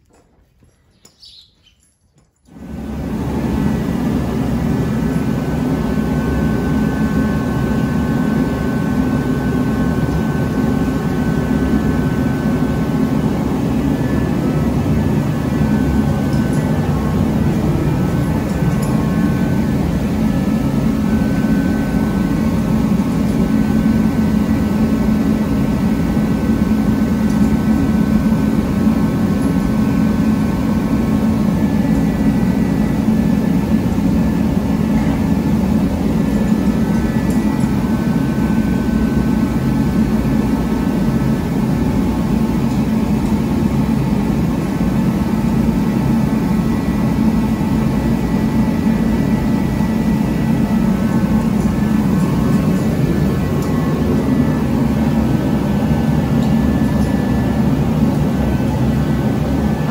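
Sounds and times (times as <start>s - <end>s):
steady machine roar: 2.5s - 59.9s.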